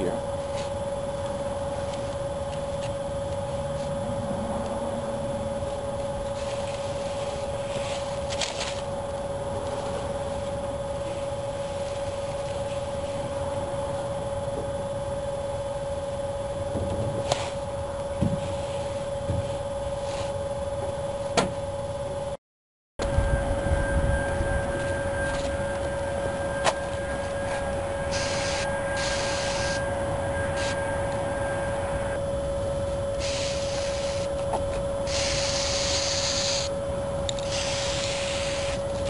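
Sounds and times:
machine hum: 0.0 - 22.4, 23.0 - 39.0.

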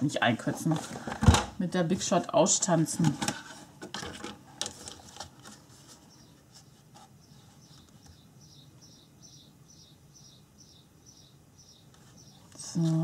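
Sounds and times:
paper rustling: 3.0 - 8.0.

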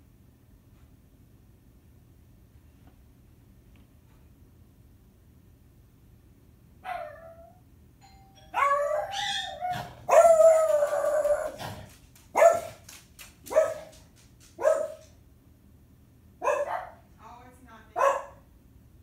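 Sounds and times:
parrot calls: 8.6 - 11.6.

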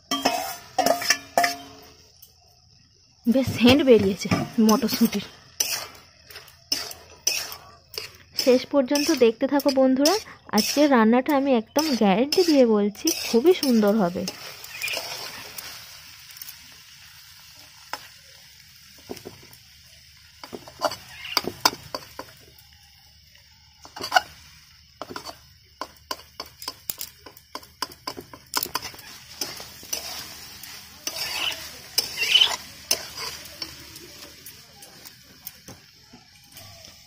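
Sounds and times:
vegetables sizzling: 0.0 - 37.0
metal spatula scraping pan: 0.1 - 1.8, 4.3 - 15.8, 20.4 - 22.3, 27.8 - 33.8.

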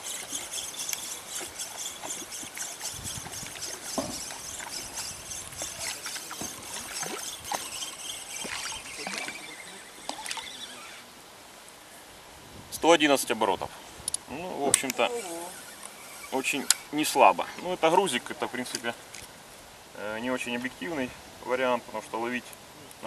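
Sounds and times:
fishing reel being cranked: 0.0 - 11.0, 14.7 - 17.2.

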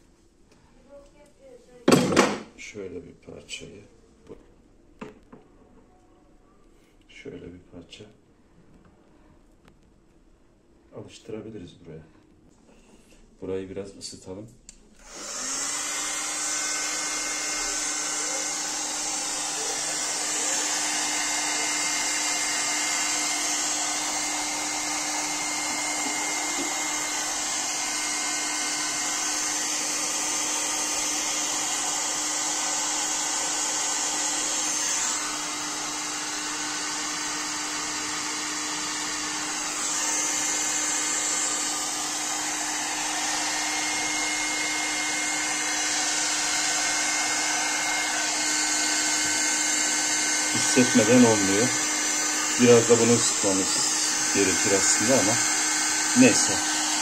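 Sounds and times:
heat gun blowing air: 15.0 - 57.0.

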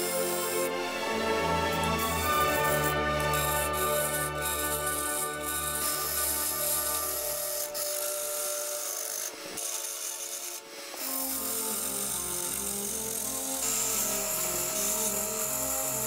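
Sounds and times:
background music: 0.0 - 9.5
lathe tool scraping wood: 0.0 - 16.0.

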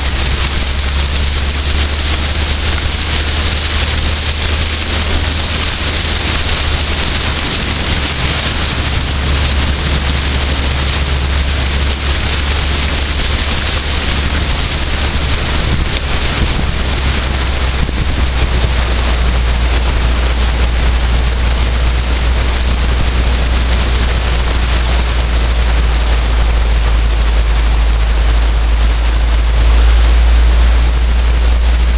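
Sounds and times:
car engine and road rumble: 0.0 - 31.9
water hissing around tyres: 0.0 - 31.9.

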